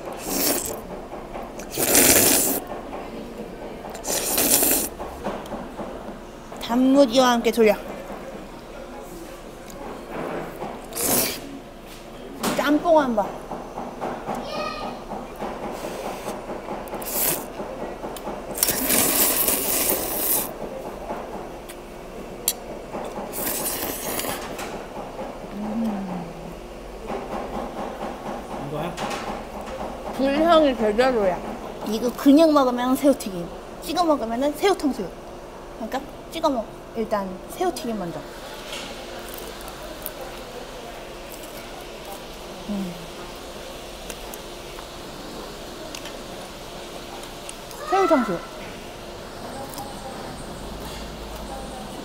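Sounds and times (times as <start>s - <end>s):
noodles slurped: 0.1s - 0.8s, 1.6s - 2.6s, 4.0s - 4.9s, 10.9s - 11.5s, 16.2s - 17.5s, 18.6s - 20.6s, 23.3s - 24.4s.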